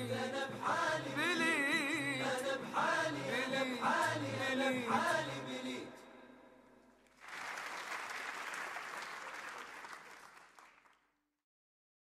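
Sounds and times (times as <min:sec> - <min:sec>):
person singing: 0:00.0 - 0:06.0
audience applauding: 0:07.0 - 0:11.1.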